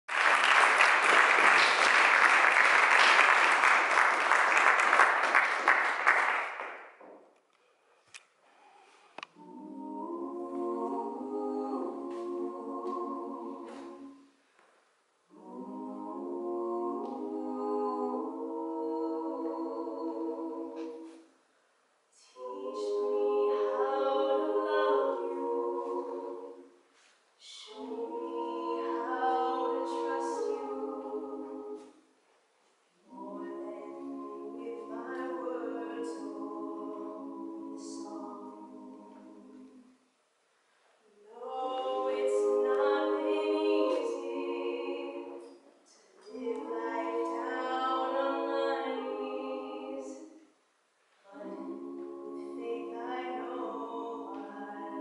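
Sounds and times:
small audience applauding: 0:00.0 - 0:07.1
vocal trio singing a cappella: 0:09.2 - 0:14.3, 0:15.3 - 0:21.3, 0:22.2 - 0:32.0, 0:33.0 - 0:39.9, 0:41.2 - 0:50.4, 0:51.2 - 0:55.0.

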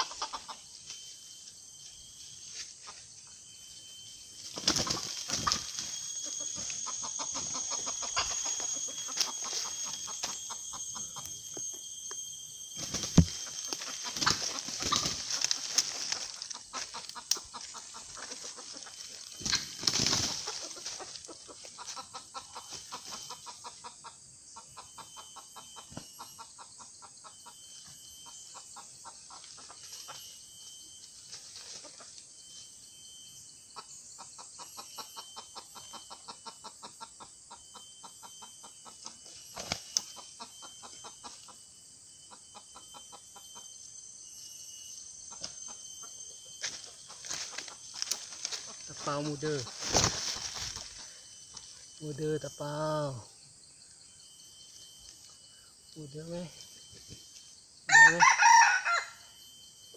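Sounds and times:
rooster flapping wings: 0:04.5 - 0:05.9, 0:14.1 - 0:15.9, 0:19.4 - 0:20.5, 0:49.7 - 0:50.9
scuffling in dry leaves: 0:13.2 - 0:21.2, 0:46.7 - 0:51.0.

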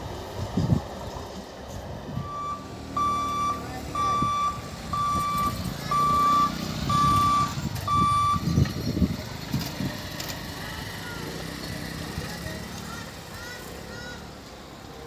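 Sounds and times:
motorbike engines running: 0:00.0 - 0:15.0
high electronic warning beeps: 0:02.2 - 0:08.6.

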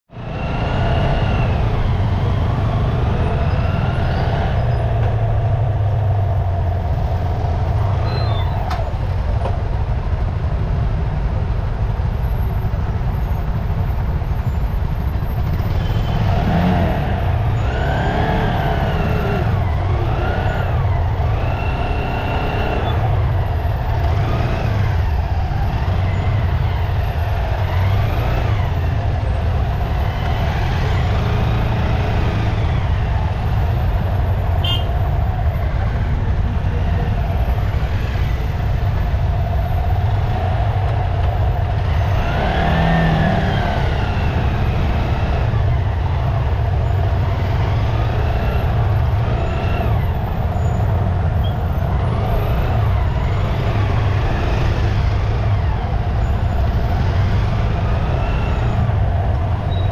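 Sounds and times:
gliding engine tones: 0:00.1 - 0:10.2, 0:12.0 - 0:59.9
motorcycle and scooter traffic: 0:00.1 - 0:59.9.

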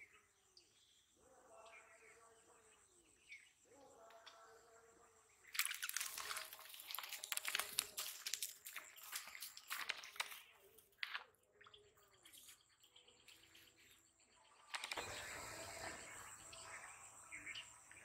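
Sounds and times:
rustling in dry grass: 0:05.6 - 0:11.2.

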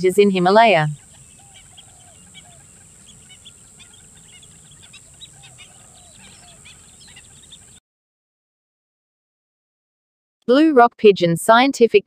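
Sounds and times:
birds calling: 0:00.0 - 0:07.8
steady high hiss: 0:00.6 - 0:07.8.

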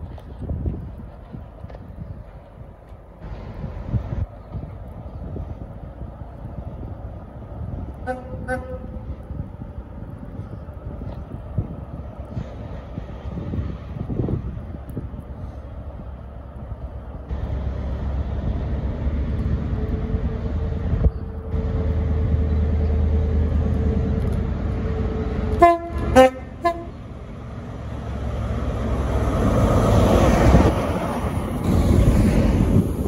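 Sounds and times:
diesel train engine drone: 0:00.0 - 0:33.0
train wheel noise: 0:00.0 - 0:33.0
train horn blasts: 0:08.0 - 0:09.0, 0:25.5 - 0:27.0.

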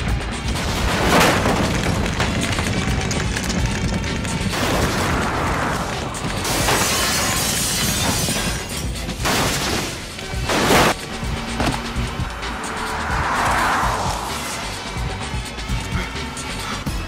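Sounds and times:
background music: 0:00.0 - 0:17.0
debris shattering and crashing: 0:00.2 - 0:11.0
explosions: 0:04.4 - 0:07.3.

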